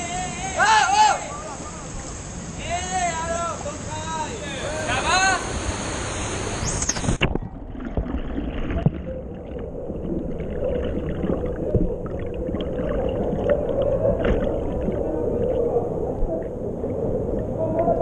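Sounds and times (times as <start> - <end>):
water splashing: 5.4 - 18.0
underwater bubbling and gurgling: 6.9 - 18.0.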